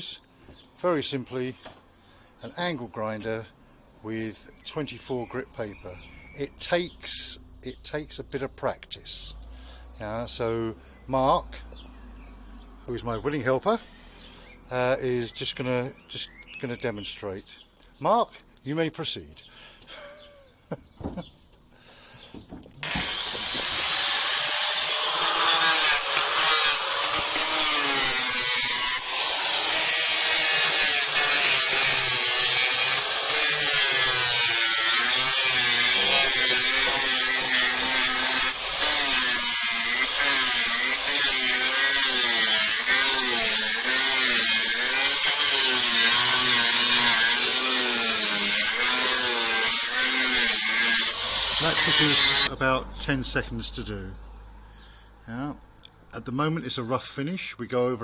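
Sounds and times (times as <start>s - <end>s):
angle grinder sanding wood: 22.8s - 52.6s.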